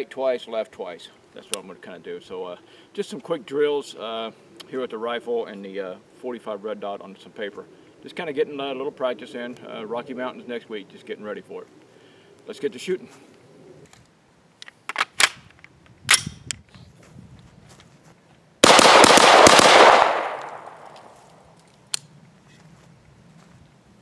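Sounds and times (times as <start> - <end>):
rifle firing rapid shots: 18.6 - 20.9
gunshot echo: 18.6 - 21.3.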